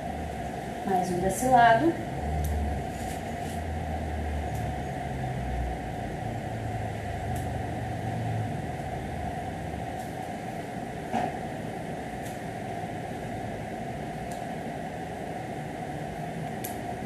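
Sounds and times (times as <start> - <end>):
steady machine hum: 0.0 - 17.0.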